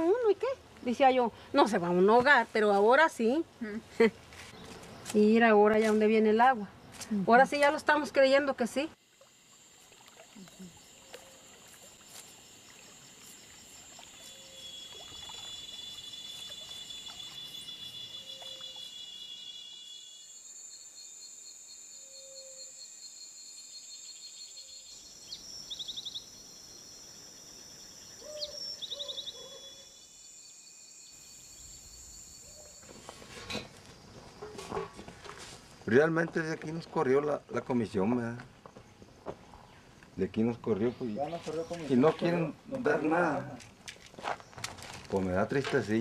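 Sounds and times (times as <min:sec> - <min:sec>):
insects trilling: 0:00.0 - 0:46.0
chirping runs: 0:27.9 - 0:29.9
short bird calls: 0:28.2 - 0:29.9.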